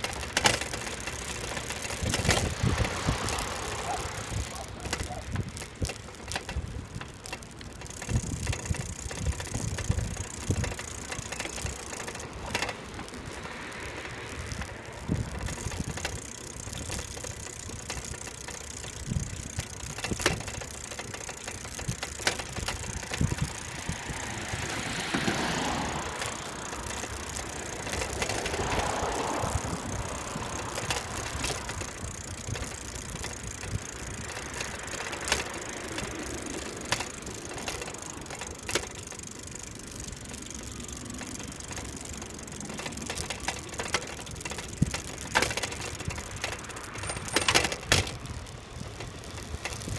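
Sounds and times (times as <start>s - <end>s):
bike rattling knock: 0.0s - 12.8s, 14.6s - 49.9s
bicycle tyre rumble: 0.0s - 49.9s
wind buffeting microphone: 1.2s - 38.3s.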